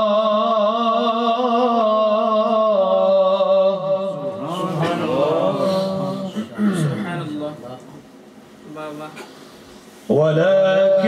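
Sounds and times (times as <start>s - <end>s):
man reciting in melodic style: 0.0s - 7.7s, 10.1s - 11.0s
men's voices: 3.6s - 8.1s.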